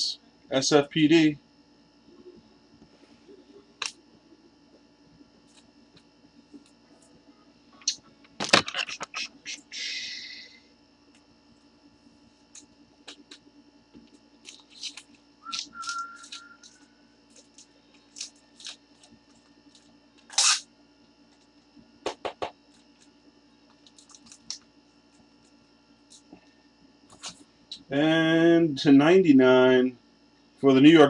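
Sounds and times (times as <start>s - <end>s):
card packaging clicks and rustles: 14.0s - 20.6s, 23.7s - 24.7s
packaging tearing rustle: 14.4s - 20.6s.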